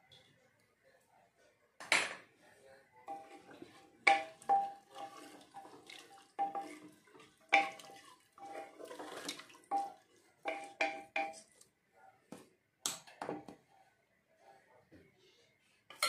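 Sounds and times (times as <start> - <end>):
wooden spatula scraping metal pot: 3.1 - 11.6.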